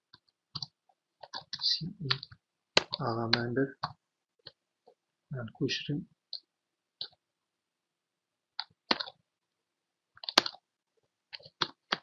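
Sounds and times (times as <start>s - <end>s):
keyboard and mouse clicks: 0.1s - 5.0s, 6.3s - 7.2s, 8.6s - 9.2s, 10.2s - 10.6s, 11.3s - 12.0s.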